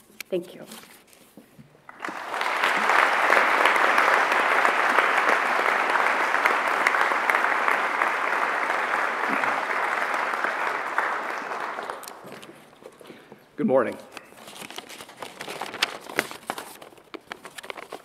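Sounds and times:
audience applauding: 0:01.9 - 0:12.6.

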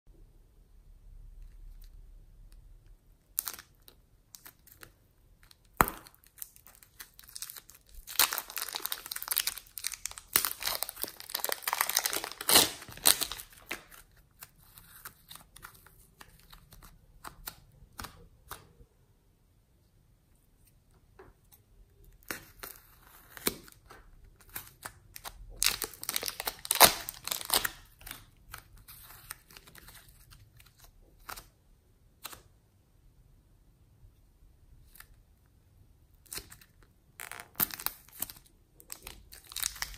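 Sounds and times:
plastic bags crinkling: 0:06.3 - 0:14.0, 0:25.5 - 0:28.1.

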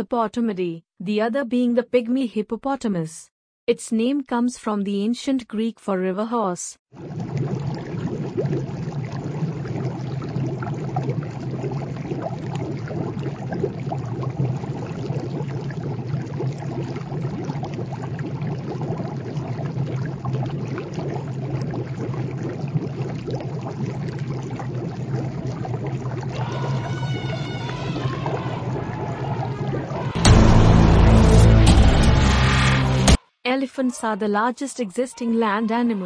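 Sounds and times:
water splashing and trickling: 0:06.9 - 0:32.1.

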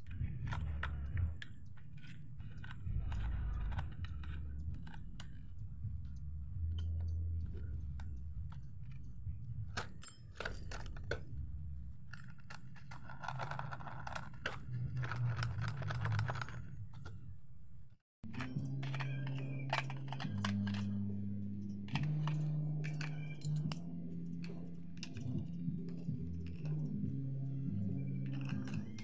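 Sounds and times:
clicks and knocks of metal parts: 0:00.0 - 0:11.3, 0:12.0 - 0:17.2, 0:18.2 - 0:27.2, 0:27.8 - 0:29.0
low rumble: 0:02.4 - 0:09.8, 0:10.5 - 0:12.5.

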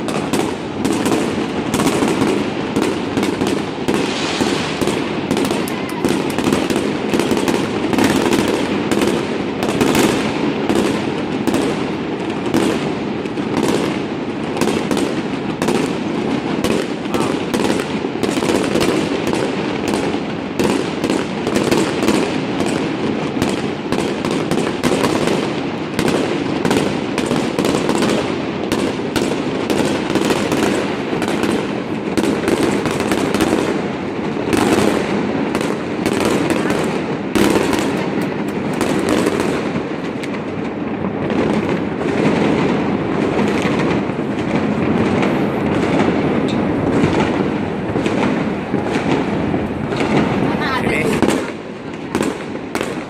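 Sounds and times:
fireworks bangs and crackles: 0:00.0 - 0:53.0.

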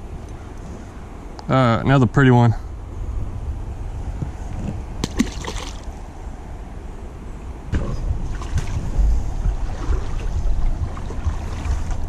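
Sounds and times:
fish splashing into water: 0:05.0 - 0:05.9, 0:08.3 - 0:08.8
river water splashing: 0:05.0 - 0:06.6, 0:07.7 - 0:12.0
low microphone rumble: 0:07.2 - 0:12.0.

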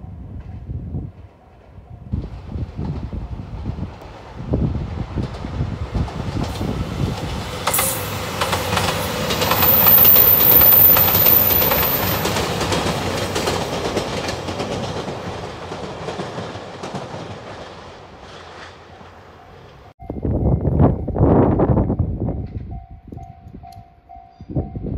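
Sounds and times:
diesel train passing: 0:00.0 - 0:24.9
wheels clattering over rail joints: 0:05.2 - 0:19.9.

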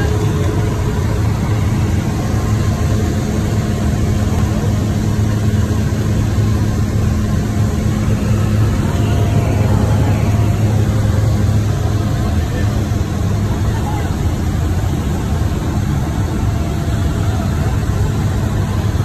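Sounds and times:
plane engine and propeller drone: 0:00.0 - 0:19.0
loud rushing noise: 0:05.5 - 0:13.7.

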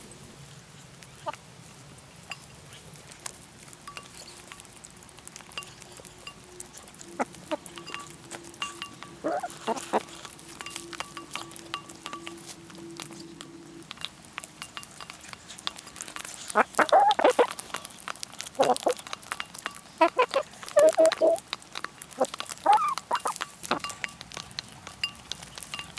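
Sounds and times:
low steady hum: 0:00.0 - 0:17.6
hens pecking beak taps: 0:02.2 - 0:25.9
hens clucking: 0:06.6 - 0:24.7.

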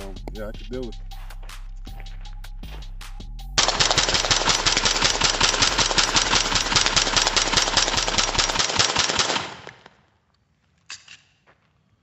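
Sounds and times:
suppressed rifle shots: 0:03.6 - 0:09.8.

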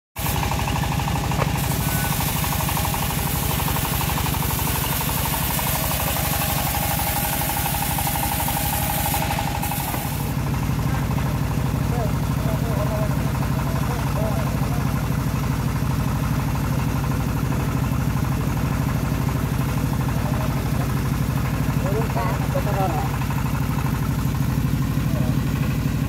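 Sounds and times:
sawmill engine thudding: 0:00.2 - 0:26.0.

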